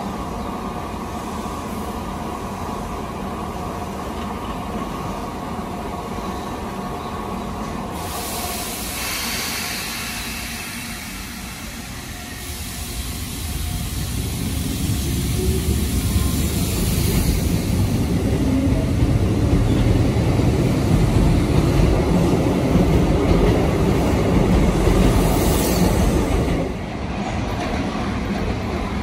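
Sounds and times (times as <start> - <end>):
train low rumble: 0.0 - 29.0
train pulling out: 0.2 - 29.0
compressed air hiss: 7.9 - 18.1.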